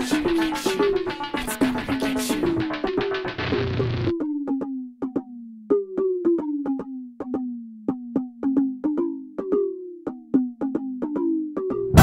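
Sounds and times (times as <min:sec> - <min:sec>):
drum machine break: 0:00.0 - 0:04.1.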